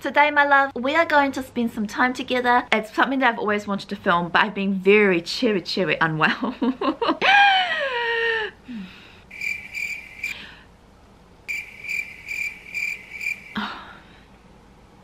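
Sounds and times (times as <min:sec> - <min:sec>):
cricket chirping: 0:09.3 - 0:10.4, 0:11.5 - 0:13.7.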